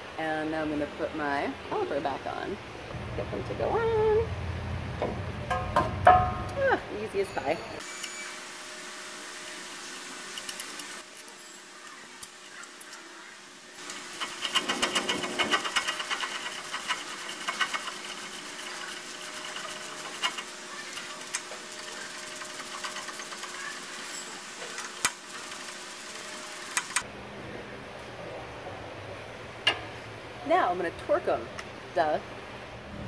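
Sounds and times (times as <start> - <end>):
sharp metal knocks: 5.0 - 6.5
ratchet clicking rapidly: 13.8 - 27.0.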